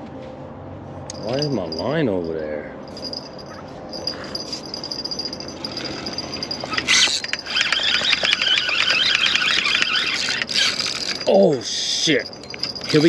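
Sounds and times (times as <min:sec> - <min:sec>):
reel rattle: 0:02.9 - 0:13.0
fishing reel buzzing: 0:04.6 - 0:11.3.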